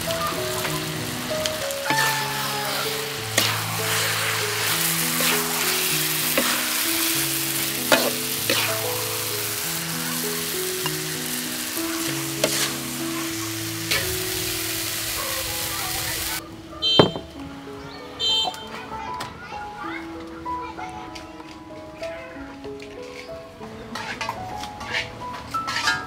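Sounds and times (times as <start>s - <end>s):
food sizzling in a wok: 0.0s - 17.0s, 25.7s - 26.0s
slow background music: 0.0s - 26.0s
spatula scraping and knocking pan: 3.4s - 8.8s, 12.1s - 12.8s, 24.0s - 26.0s.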